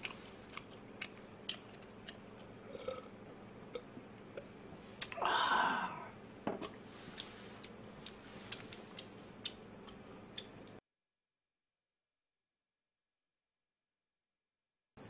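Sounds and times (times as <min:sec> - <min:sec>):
person drinking from a glass: 0:02.6 - 0:03.1
breathy exhale: 0:05.2 - 0:06.1.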